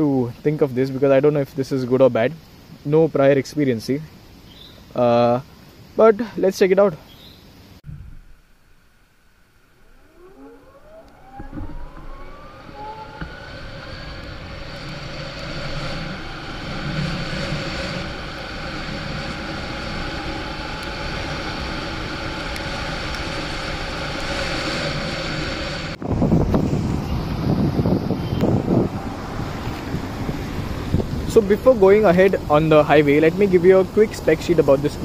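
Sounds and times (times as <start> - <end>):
wind and road noise: 0.0 - 35.0
electric motor whine rising: 8.0 - 32.4.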